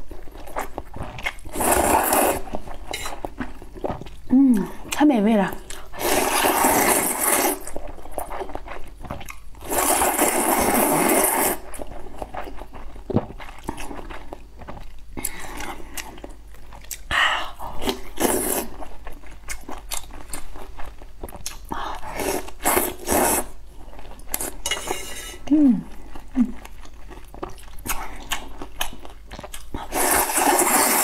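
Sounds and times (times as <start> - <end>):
person slurping noodles: 1.2 - 3.2, 5.9 - 7.8, 9.6 - 11.8, 17.8 - 18.8, 22.0 - 23.6, 29.8 - 31.0
chewing with crunching clicks: 18.8 - 22.0, 26.6 - 29.9.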